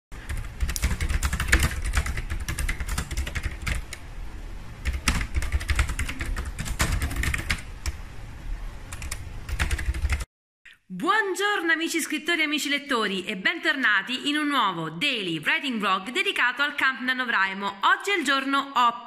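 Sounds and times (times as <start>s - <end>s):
fast typing on laptop keyboard: 0.2s - 4.0s, 4.8s - 8.0s, 8.9s - 10.3s.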